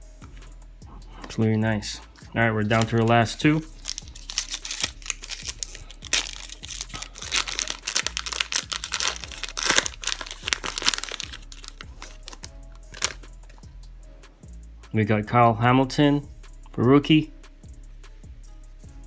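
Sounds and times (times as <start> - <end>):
foil wrapper tearing and crinkling: 3.7 - 13.2.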